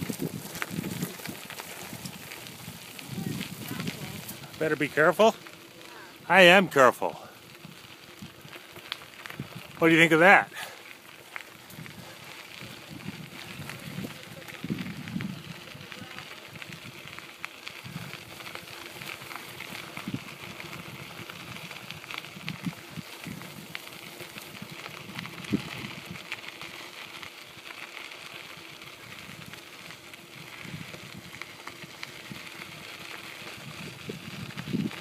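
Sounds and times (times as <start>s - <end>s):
bicycle tyres crackling on gravel: 0.0s - 35.0s
small rattles and clicks: 7.2s - 35.0s.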